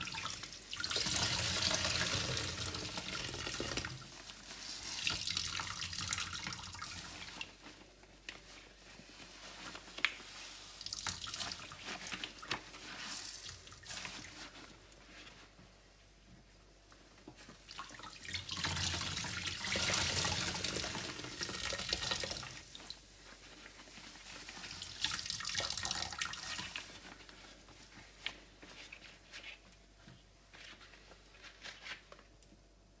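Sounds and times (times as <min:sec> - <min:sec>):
water splashing into a tub: 0:17.7 - 0:22.9.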